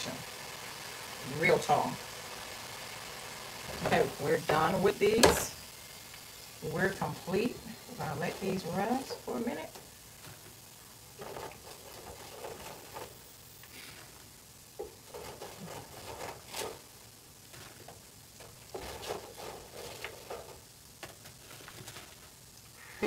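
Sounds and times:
tongs scraping wire basket: 0:11.1 - 0:14.1, 0:14.8 - 0:16.9, 0:17.5 - 0:22.3.

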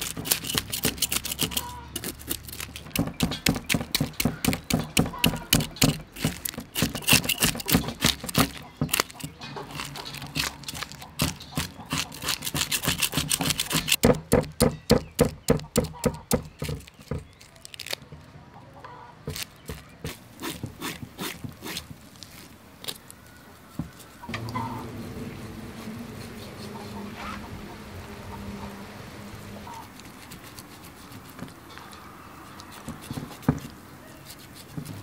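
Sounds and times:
knife scraping fish scales: 0:00.0 - 0:14.0, 0:19.3 - 0:24.9, 0:29.7 - 0:35.0.

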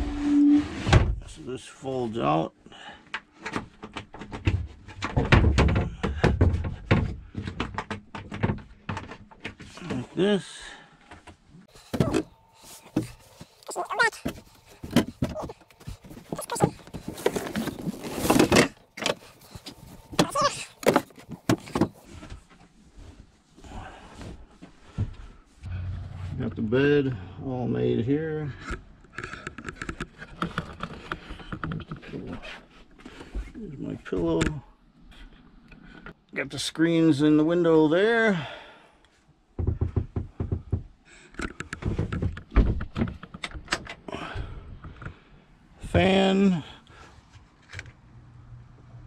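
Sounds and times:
knocks scrapes and rustles: 0:11.1 - 0:23.4.

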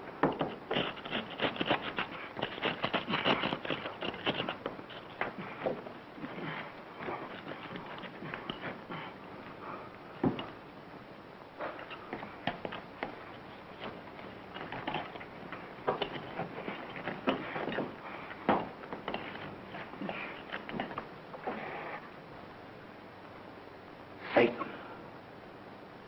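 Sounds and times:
bricks knocking and scraping: 0:00.1 - 0:09.2, 0:10.2 - 0:10.6, 0:11.6 - 0:21.1
background hiss: 0:04.8 - 0:26.0.

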